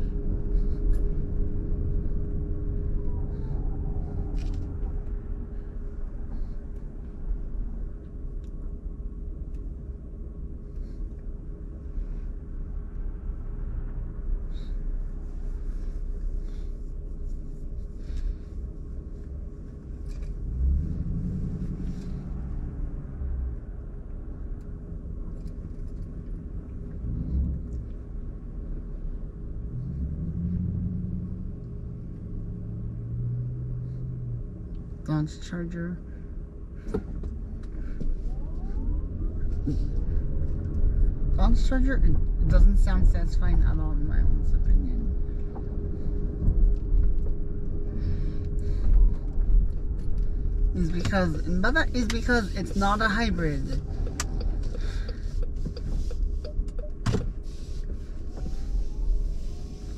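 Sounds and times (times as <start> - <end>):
passing vehicle engine drone: 0.0 - 8.0, 20.0 - 25.0, 26.5 - 35.1
low car interior rumble: 0.0 - 59.9.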